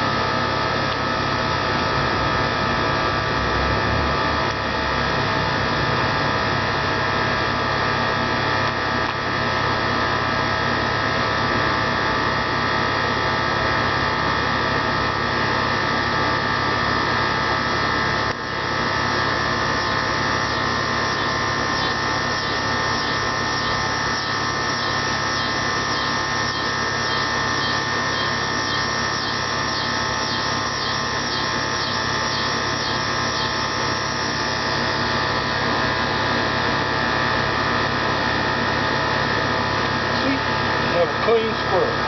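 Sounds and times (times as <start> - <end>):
buzzing drone of held tones: 0.0 - 42.0
faint regular pulsing: 18.4 - 42.0.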